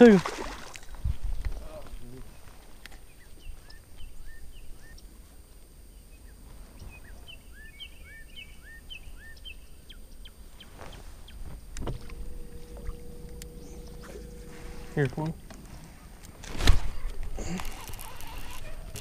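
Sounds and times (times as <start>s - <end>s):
bird chirping: 6.0s - 19.0s
low steady rumble: 11.5s - 19.0s.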